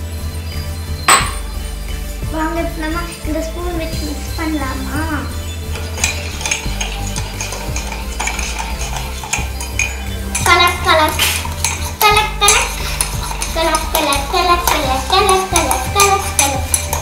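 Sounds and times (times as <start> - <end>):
spoon clinking against mug: 5.7 - 17.0.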